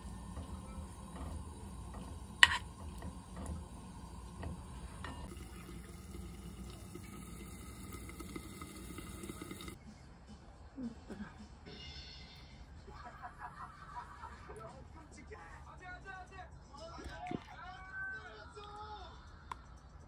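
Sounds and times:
corn sizzling in a pan: 0.0s - 9.8s
wooden spatula clacking on pan: 1.3s - 3.7s.

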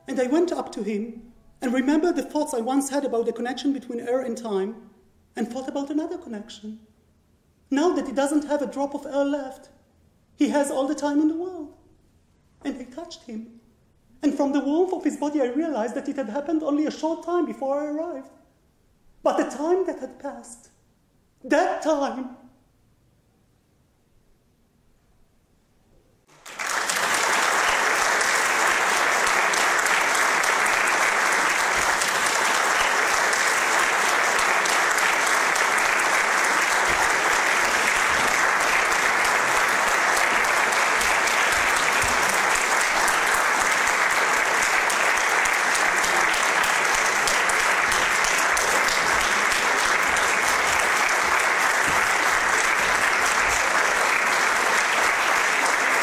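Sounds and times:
audience applauding: 26.3s - 56.0s.

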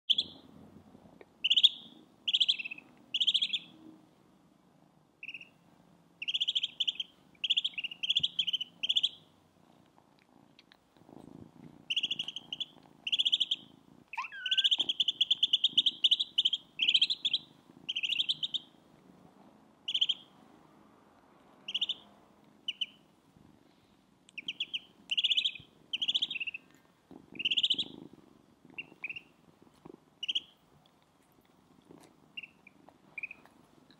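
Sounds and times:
kitten purring: 0.2s - 3.9s, 4.7s - 20.7s, 22.4s - 33.9s
ducklings peeping: 1.4s - 3.6s, 5.2s - 5.6s, 6.2s - 9.2s, 11.9s - 18.7s, 19.9s - 20.2s, 21.7s - 22.0s, 22.7s - 23.0s, 24.4s - 26.6s, 27.4s - 28.0s, 28.8s - 29.3s, 30.2s - 30.5s, 32.4s - 33.4s.

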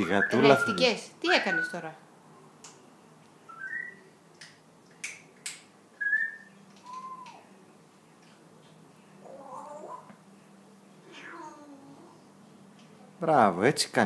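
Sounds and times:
parrot whistling: 0.0s - 1.8s, 3.5s - 4.1s, 6.0s - 7.5s.

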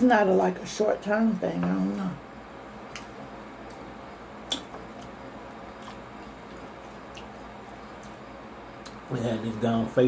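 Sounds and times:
people chewing food: 2.8s - 9.1s
mouth clicks and smacks: 4.4s - 5.1s.

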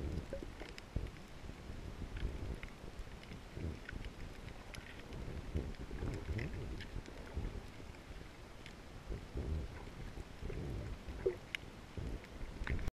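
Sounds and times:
faint underwater clicks: 0.0s - 12.9s
underwater rumble of moving water: 0.0s - 12.9s.

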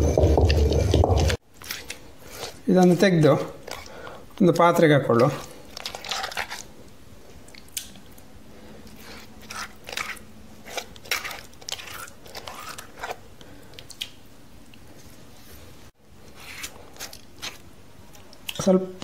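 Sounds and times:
hand scraping wet paste: 0.1s - 6.8s, 8.8s - 13.2s, 15.0s - 17.7s.

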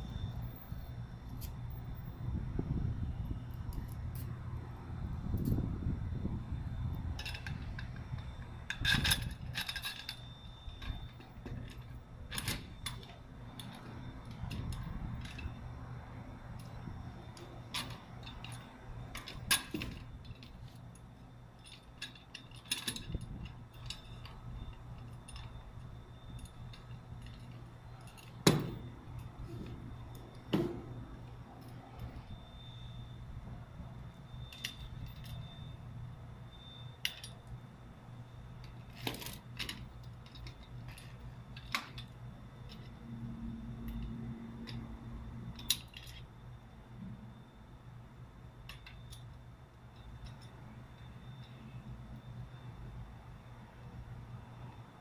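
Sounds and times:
steady low hum: 0.0s - 55.0s
metallic clinks and knocks: 7.0s - 33.1s, 36.6s - 37.6s, 38.2s - 46.4s.

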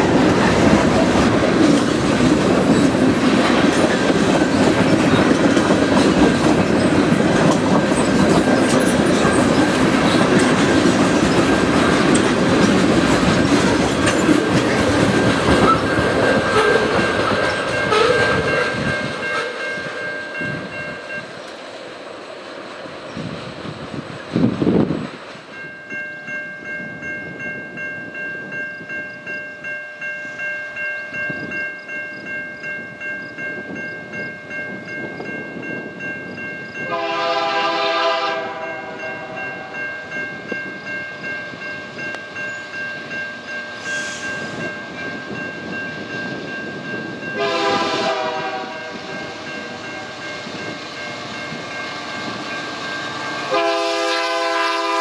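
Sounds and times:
train rumble: 0.0s - 30.1s, 30.7s - 55.0s
train air horn blasts: 16.3s - 17.1s, 17.8s - 20.1s, 36.9s - 39.8s, 43.8s - 44.5s, 47.4s - 50.2s, 53.4s - 55.0s.

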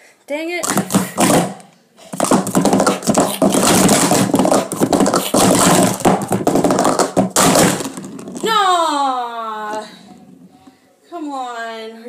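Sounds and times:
plastic cups clattering: 0.6s - 8.6s.

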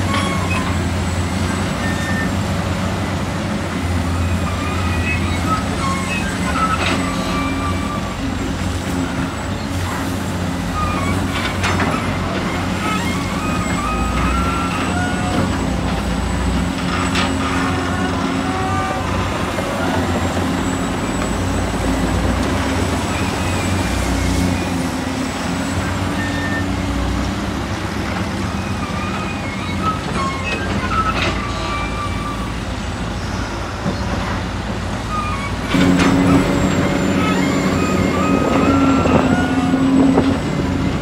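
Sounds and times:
heavy machinery engines running: 0.0s - 41.0s
machine squeaks: 4.2s - 8.2s, 10.7s - 15.7s, 28.5s - 32.6s, 35.1s - 40.6s.

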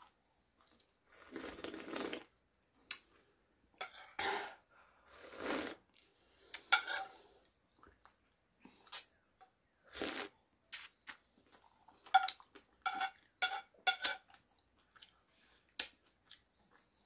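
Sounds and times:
person slurping: 1.1s - 2.3s, 5.1s - 7.2s, 9.9s - 10.9s.

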